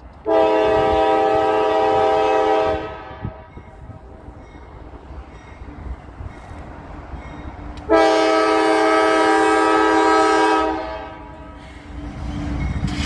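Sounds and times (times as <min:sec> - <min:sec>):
train rumble: 0:00.0 - 0:13.0
locomotive air horn: 0:00.2 - 0:03.5, 0:07.9 - 0:11.7.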